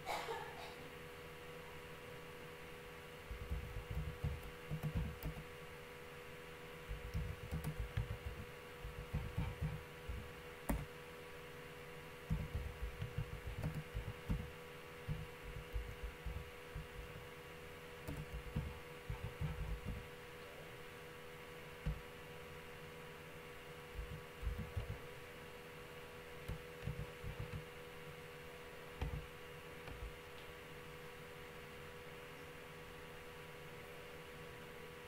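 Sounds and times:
steady electrical hum: 0.0s - 35.0s
keyboard typing: 3.3s - 5.5s, 6.9s - 10.9s, 12.2s - 17.3s, 18.0s - 20.1s, 21.8s - 22.0s, 24.0s - 25.1s, 26.4s - 27.7s, 29.0s - 30.2s.

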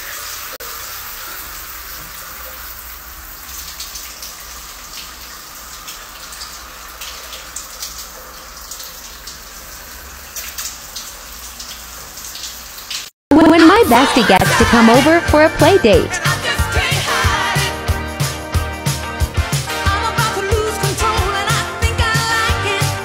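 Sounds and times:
water spattering: 0.0s - 17.7s
shower water spraying: 0.0s - 23.0s.

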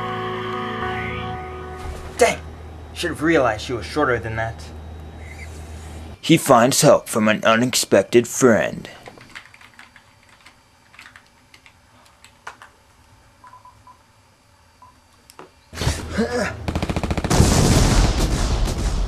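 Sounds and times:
phone keypad beeps: 13.4s - 14.0s
harsh rattling noise burst: 16.6s - 19.0s.

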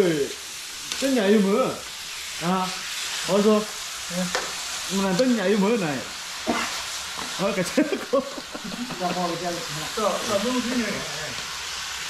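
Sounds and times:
curry sizzling in a metal pan: 0.0s - 12.0s.

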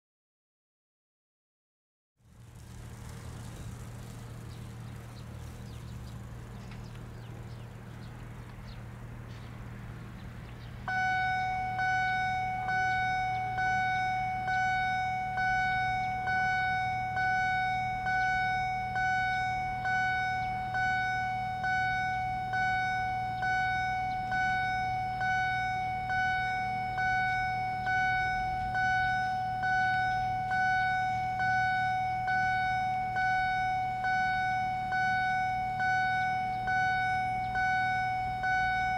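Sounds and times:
low steady hum: 2.2s - 38.9s
level crossing warning bell: 10.9s - 38.9s.

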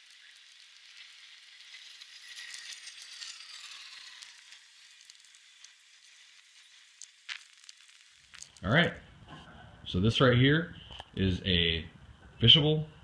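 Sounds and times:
paper peeling off vinyl: 0.0s - 8.7s.

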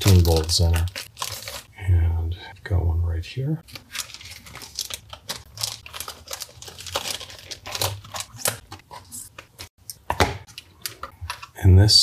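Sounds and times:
plastic packaging crinkling: 0.0s - 1.8s, 3.6s - 9.7s.

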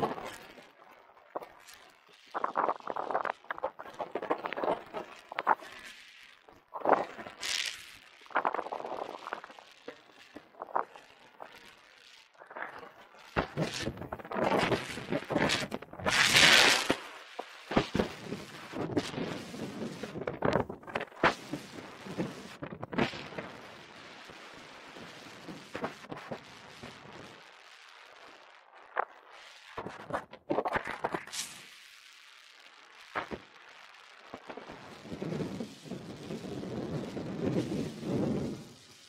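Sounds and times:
skis scraping over snow: 36.4s - 39.0s.

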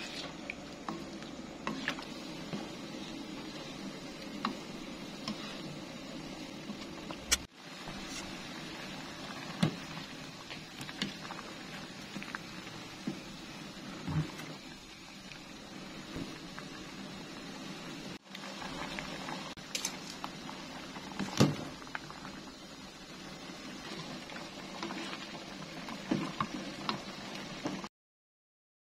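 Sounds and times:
water boiling and bubbling: 0.0s - 27.9s.

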